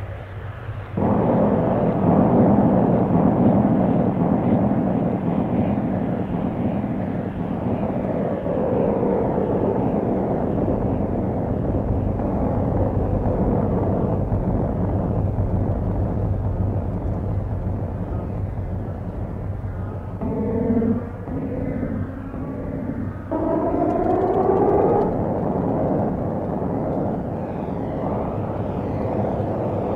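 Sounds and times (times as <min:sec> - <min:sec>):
low rumble of distant traffic: 0:00.0 - 0:29.9.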